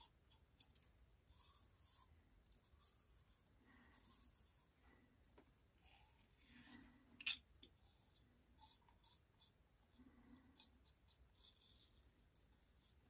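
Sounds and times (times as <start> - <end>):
razor scraping stubble: 5.8 - 6.8.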